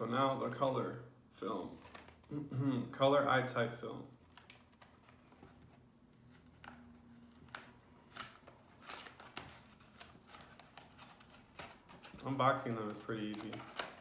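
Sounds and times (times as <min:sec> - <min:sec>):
paperboard box being opened: 0:04.4 - 0:14.0.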